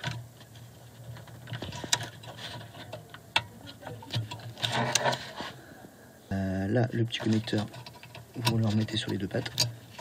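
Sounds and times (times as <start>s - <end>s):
clicks and rattles of headlight bulb: 7.2s - 10.0s.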